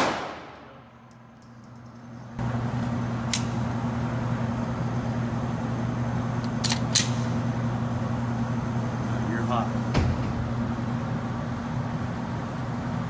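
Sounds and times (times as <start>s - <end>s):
ventilation hum: 0.0s - 13.0s
pistol handling clicks: 3.3s - 3.6s, 6.4s - 7.3s.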